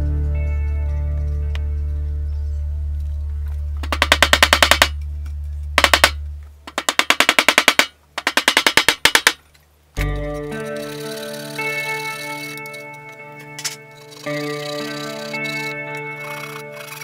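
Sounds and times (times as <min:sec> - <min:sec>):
background music: 0:00.0 - 0:03.2, 0:10.0 - 0:17.0
hammer tapping on wooden box: 0:03.8 - 0:04.9, 0:05.8 - 0:09.4.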